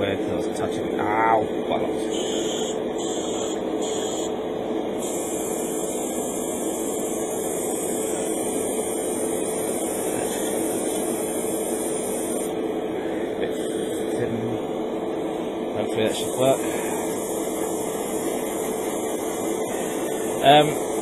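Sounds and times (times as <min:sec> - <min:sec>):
extractor fan humming: 0:00.0 - 0:21.0
airbrush hissing: 0:02.1 - 0:04.4, 0:05.0 - 0:14.2, 0:16.0 - 0:21.0.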